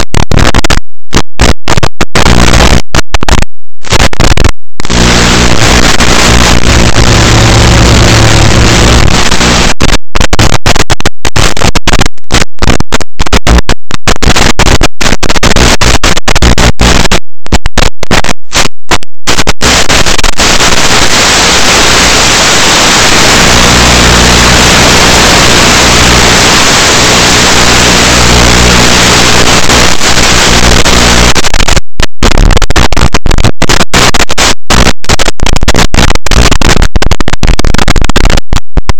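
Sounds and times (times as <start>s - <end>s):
loud static hiss: 1.4s - 18.7s, 19.3s - 38.5s
low buzzing hum: 4.9s - 9.7s.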